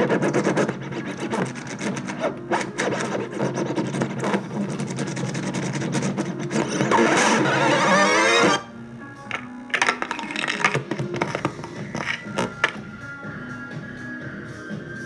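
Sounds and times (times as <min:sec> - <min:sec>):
vinyl record scratching: 0:00.0 - 0:12.8.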